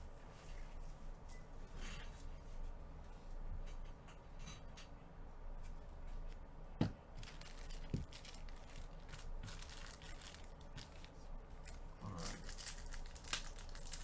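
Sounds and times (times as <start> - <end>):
foil wrappers crinkling and tearing: 7.2 - 14.0.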